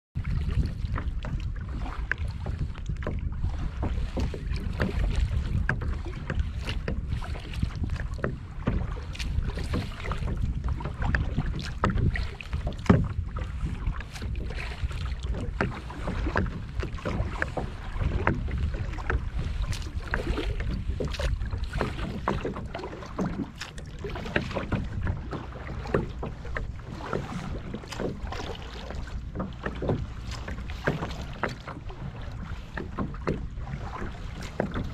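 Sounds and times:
waves slapping against kayak hull: 0.2s - 34.9s
wind rumble on microphone: 0.2s - 34.9s.

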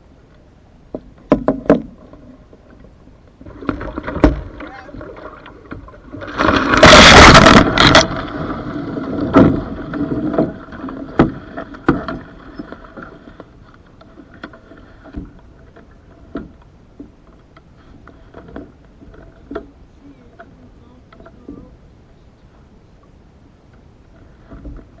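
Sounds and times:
branches scraping and rustling: 6.1s - 11.0s.

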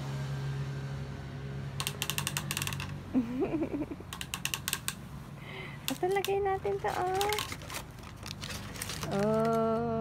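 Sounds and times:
plastic cap clicking: 4.1s - 5.0s.

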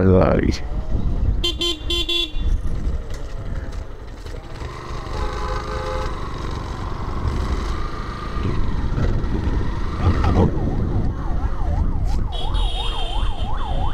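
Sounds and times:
rumble of passing vehicles: 0.0s - 13.9s
vehicle horn beeping: 1.4s - 2.6s, 4.9s - 6.7s, 12.3s - 13.5s
long horn tone: 4.6s - 7.6s, 12.3s - 13.6s.

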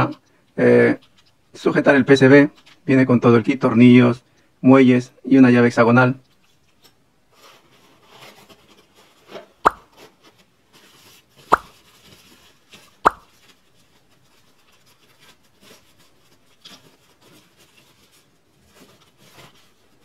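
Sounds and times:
plastic bag rustling: 7.3s - 20.0s
click-and-pop sound effects: 9.6s - 9.8s, 11.5s - 11.7s, 13.0s - 13.3s.

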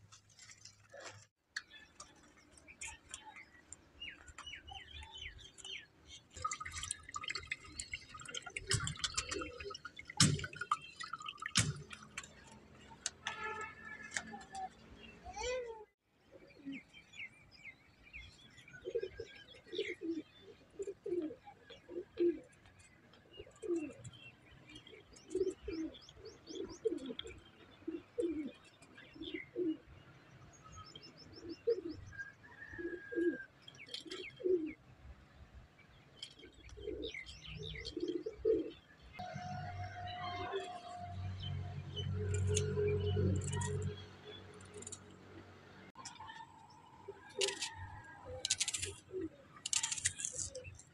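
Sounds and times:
small birds chirping: 0.8s - 13.3s, 14.3s - 39.2s
doves cooing: 6.4s - 12.9s, 16.3s - 16.9s, 18.8s - 24.2s, 24.8s - 29.9s, 31.4s - 34.8s, 36.2s - 41.1s, 47.0s - 50.8s.

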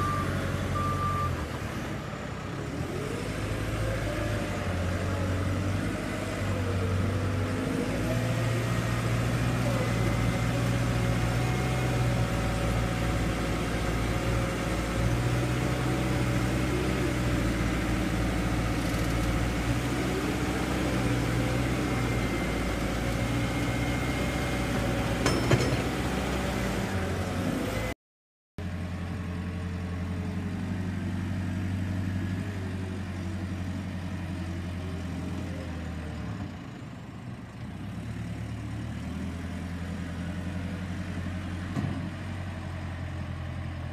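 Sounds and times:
diesel engine running under load: 0.0s - 27.9s, 28.6s - 43.9s.

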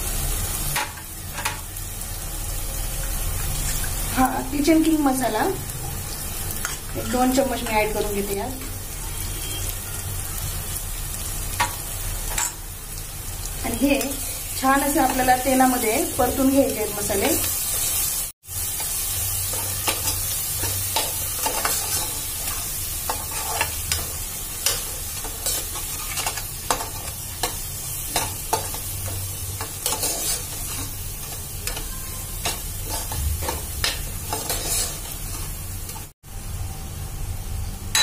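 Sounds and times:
food sizzling in oil: 0.0s - 38.0s
steel spoon scraping a pot: 29.6s - 35.5s.

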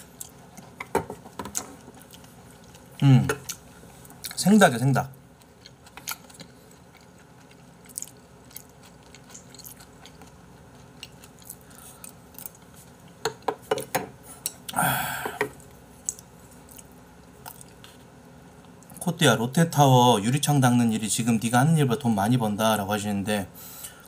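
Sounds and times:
man chewing food: 0.0s - 4.4s, 5.2s - 19.0s.

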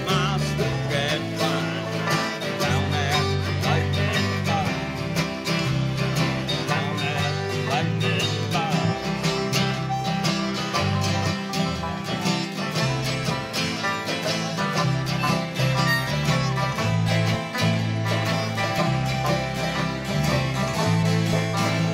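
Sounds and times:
acoustic guitars and banjo playing: 0.0s - 21.9s.

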